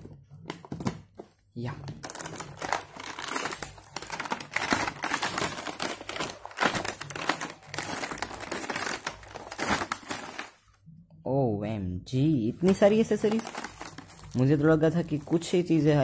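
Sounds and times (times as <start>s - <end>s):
plastic packaging crinkling: 2.0s - 10.7s, 12.6s - 16.0s.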